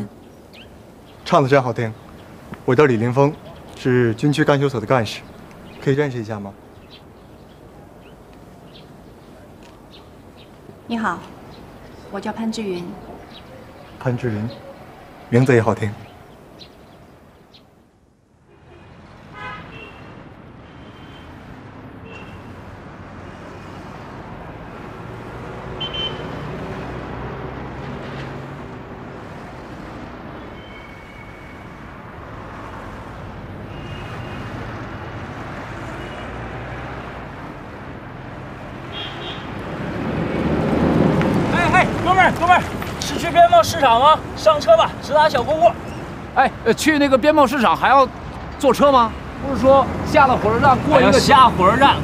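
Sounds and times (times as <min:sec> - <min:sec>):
passing road traffic drone: 0:00.0 - 0:52.0
car horn toots: 0:18.6 - 0:20.1, 0:25.8 - 0:26.4, 0:38.9 - 0:39.5.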